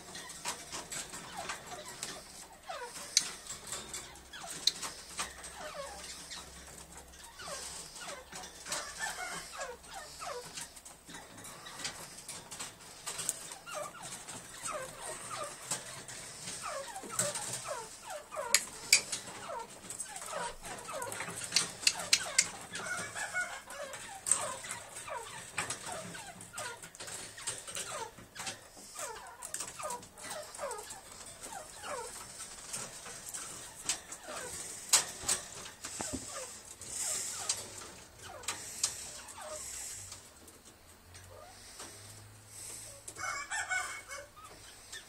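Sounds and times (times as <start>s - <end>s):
francolins chirping: 0.0s - 40.6s, 41.2s - 45.0s.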